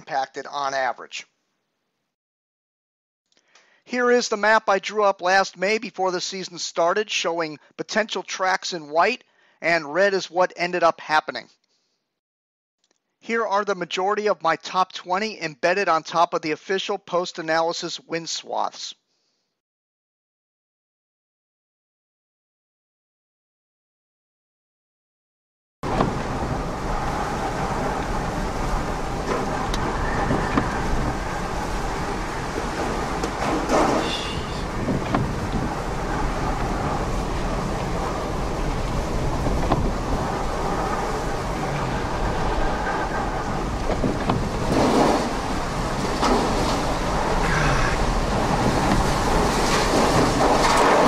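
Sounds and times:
wind and rain rushing: 25.8 - 51.0
rain clicks on vehicle: 25.9 - 47.5, 48.1 - 51.0.

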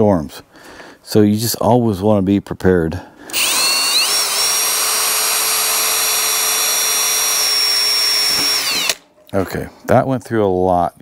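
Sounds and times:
cordless drill whining: 3.3 - 9.0.

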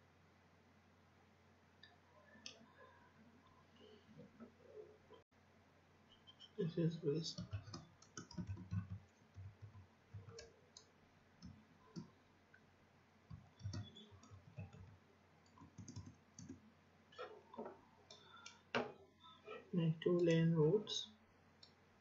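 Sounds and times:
typing on computer keyboard: 7.3 - 12.1, 13.3 - 16.6.

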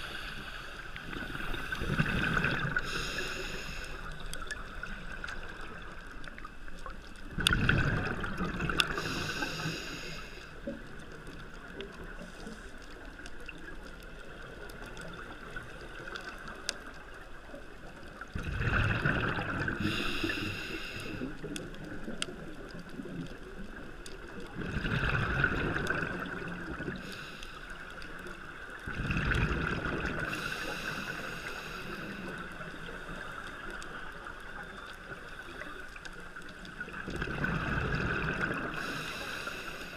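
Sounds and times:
hissing regulator inhalations: 0.0 - 4.3, 8.9 - 10.8, 19.8 - 21.4, 26.9 - 28.0, 30.3 - 32.5, 38.7 - 39.9
exhaled bubbles underwater: 0.0 - 9.9, 10.6 - 39.8.

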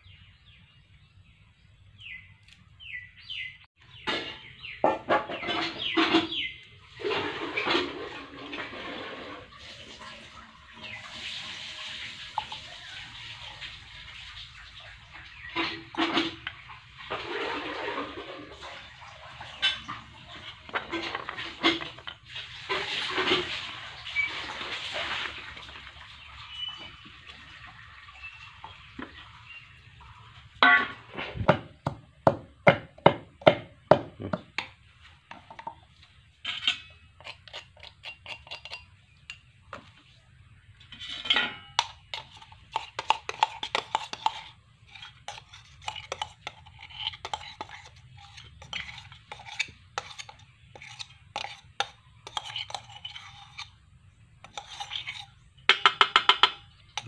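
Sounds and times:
steel dishes clinking and knocking: 19.4 - 23.6, 30.6 - 31.6, 36.4 - 39.4, 41.0 - 53.7, 54.4 - 57.0.

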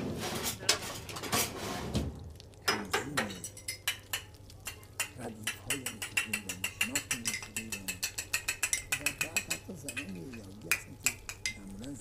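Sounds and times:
teapot and glass clinking: 2.6 - 12.0.

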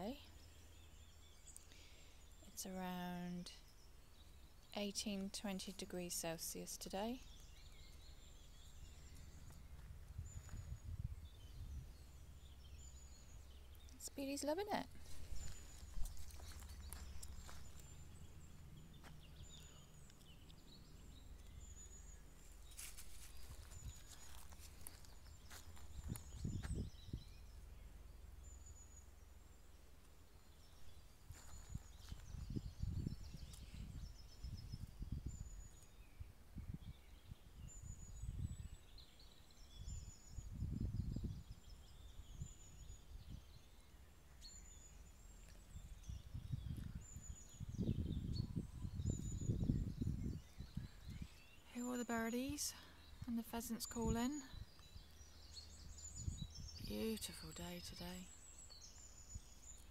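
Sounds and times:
birds chirping: 0.0 - 59.9
low rumbles on microphone: 8.6 - 13.6, 23.3 - 27.8, 30.7 - 38.8, 45.7 - 51.3, 54.0 - 56.9.

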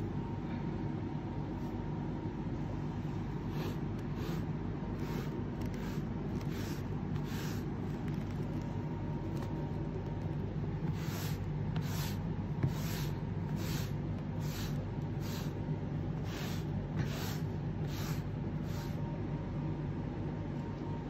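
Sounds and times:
steady low hum: 0.0 - 21.0
pet-hair rake scraping a rug: 3.5 - 7.7, 10.9 - 15.5, 16.2 - 19.0.

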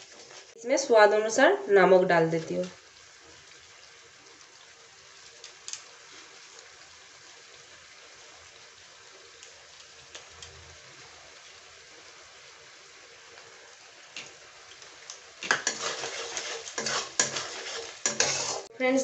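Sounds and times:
sauce simmering and sizzling: 0.0 - 19.0
sauce popping: 13.4 - 18.7.

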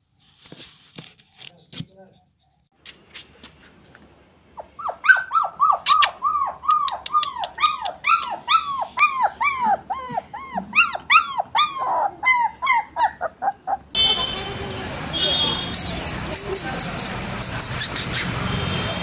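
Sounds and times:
puppy crying: 4.6 - 14.0.

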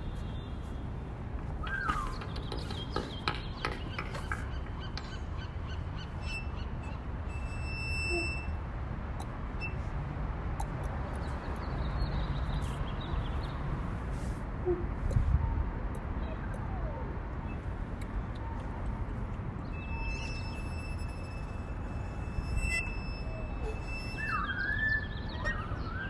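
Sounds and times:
high whistle-like tone: 7.3 - 8.6, 19.8 - 26.0.

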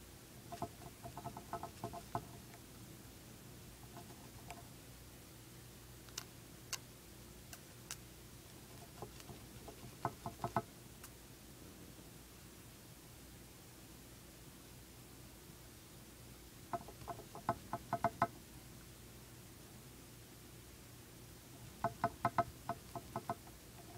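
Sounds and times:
hamster gnawing: 0.4 - 2.7, 3.7 - 4.8, 6.0 - 6.9, 7.5 - 11.2, 16.7 - 18.3, 21.6 - 23.9.

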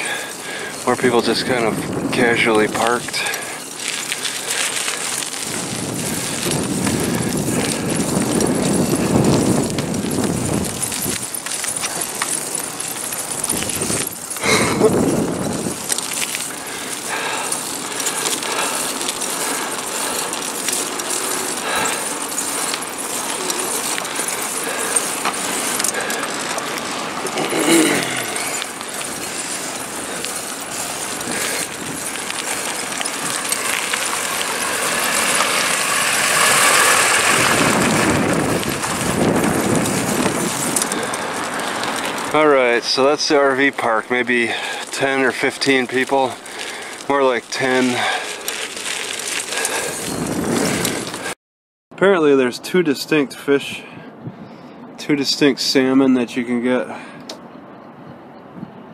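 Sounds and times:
bicycle rolling and rattling: 0.0 - 51.4, 52.0 - 58.9
wind on microphone: 1.4 - 2.4, 5.3 - 11.4, 13.4 - 15.9, 36.5 - 41.5, 49.6 - 51.3, 54.0 - 54.7, 57.9 - 58.9.

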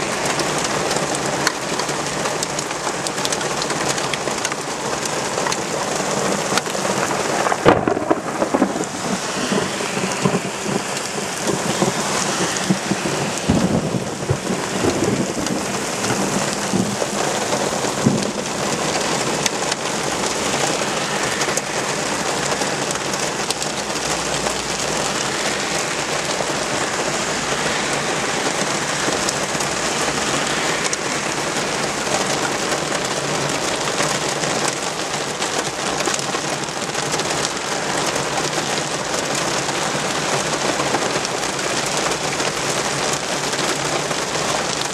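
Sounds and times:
heavy rain pouring: 0.0 - 44.9
sharp thunder cracks: 6.9 - 20.8.

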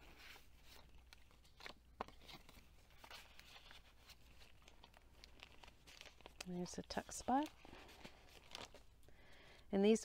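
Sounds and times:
paper and card rustling: 0.0 - 9.1.

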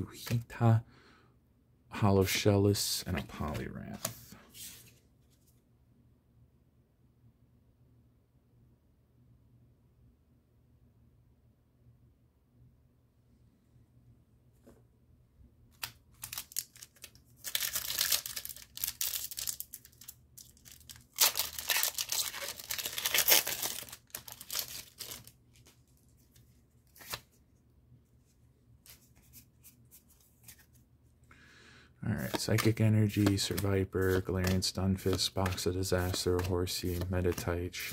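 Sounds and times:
foil pack crinkling: 16.2 - 25.8
foil tearing: 21.1 - 25.3.

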